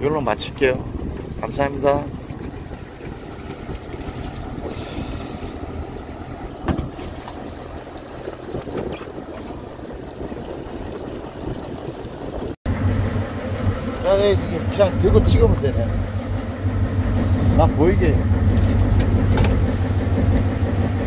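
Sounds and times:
boat engine rumble: 0.0s - 21.0s
wind on microphone: 0.2s - 7.2s, 8.1s - 12.6s.

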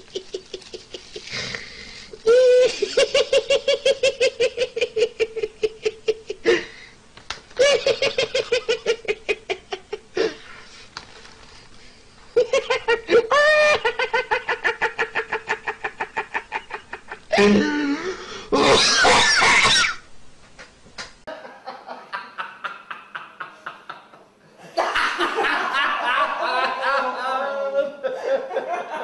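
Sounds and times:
person laughing: 0.0s - 6.8s, 7.6s - 10.5s, 12.4s - 19.7s.

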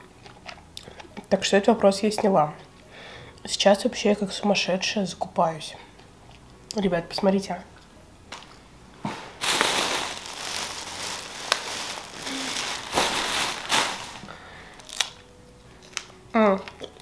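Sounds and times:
plastic bag rustling: 9.3s - 15.2s.

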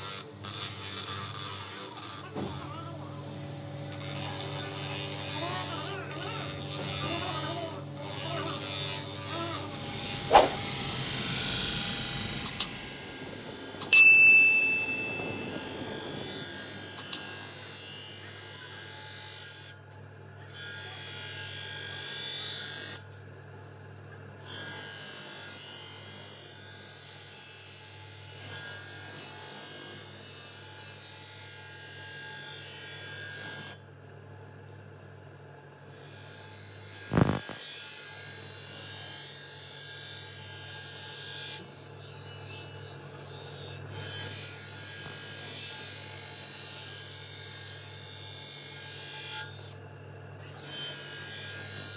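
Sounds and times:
grinder motor hum: 0.0s - 18.8s, 37.0s - 37.7s
metal hissing on grinding wheel: 4.0s - 18.2s
sharp metal clink: 13.8s - 15.7s.

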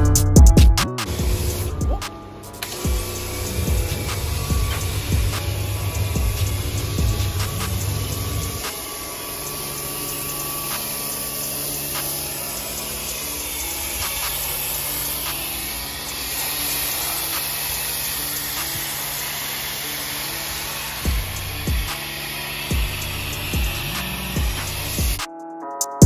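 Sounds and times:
soft background music: 0.0s - 26.0s
steady hiss: 1.1s - 25.2s.

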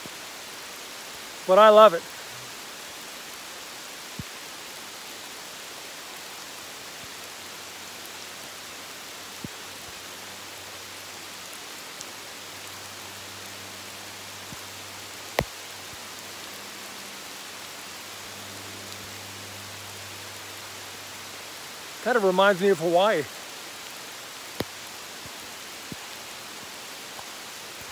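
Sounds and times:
rain falling on leaves: 0.0s - 27.9s
single raindrop ticks: 15.3s - 16.0s, 24.5s - 26.2s.

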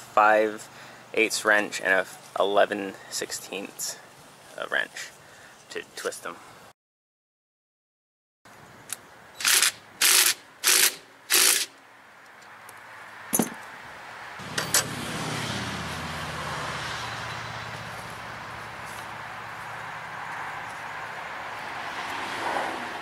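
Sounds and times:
wrench clicking: 9.4s - 11.8s.

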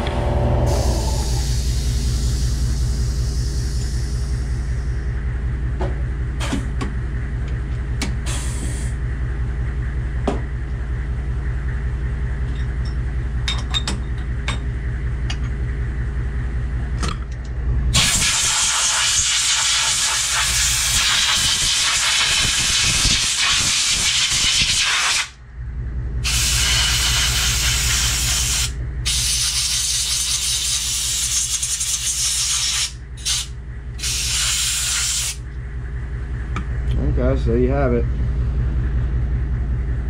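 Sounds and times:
steady low hum: 0.0s - 40.0s
air blow gun hissing: 0.7s - 4.4s, 26.3s - 35.4s.

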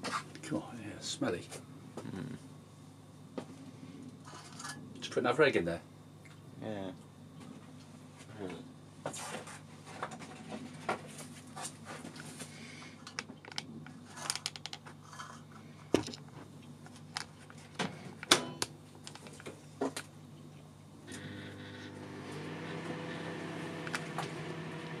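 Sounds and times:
steady low hum: 0.0s - 14.2s, 14.8s - 25.0s
objects clattering in microwave: 17.7s - 20.0s.

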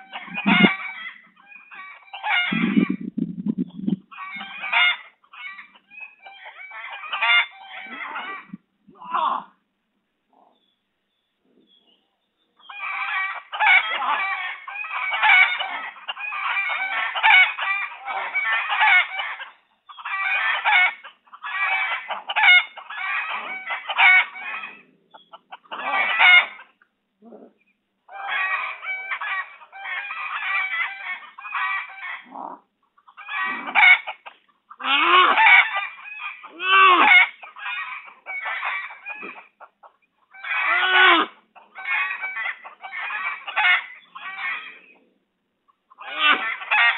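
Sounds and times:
chickens clucking: 0.0s - 9.3s, 10.2s - 46.9s.

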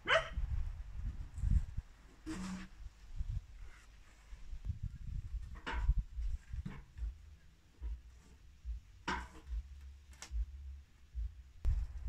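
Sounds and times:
heavy log thumping against steel frame: 5.4s - 10.5s.

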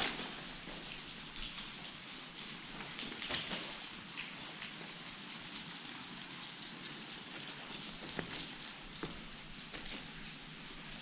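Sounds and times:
steady hiss: 0.0s - 11.0s.

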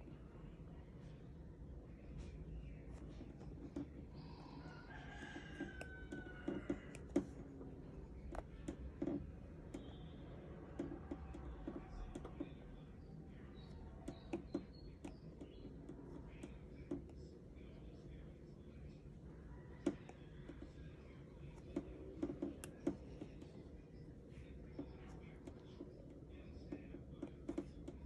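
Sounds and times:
low room hum: 0.0s - 28.0s
stylus tapping on glass screen: 5.2s - 7.6s, 10.7s - 12.6s, 13.6s - 17.3s.

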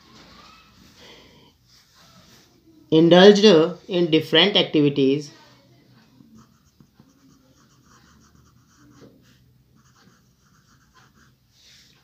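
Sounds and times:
pen scratching on paper: 6.3s - 12.0s.

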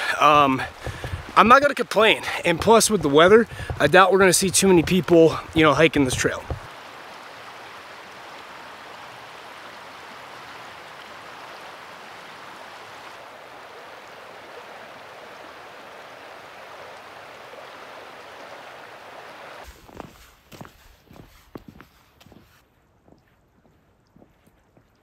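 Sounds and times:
creek water rushing: 0.0s - 19.7s.

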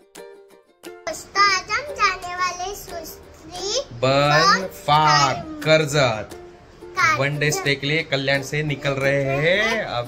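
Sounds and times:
background noise: 0.0s - 10.0s
plucked ukulele music: 0.0s - 10.0s
child's high voice: 1.1s - 5.8s, 6.9s - 7.8s.

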